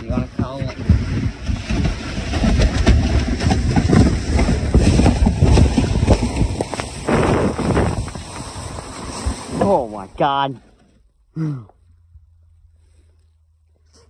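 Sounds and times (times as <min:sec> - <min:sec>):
kayak hull scraping: 0:00.0 - 0:11.2.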